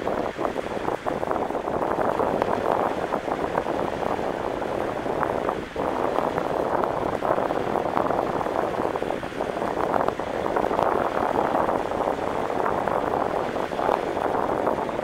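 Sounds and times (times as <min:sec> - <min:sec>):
choppy water: 0:00.0 - 0:15.0
wind: 0:00.0 - 0:15.0.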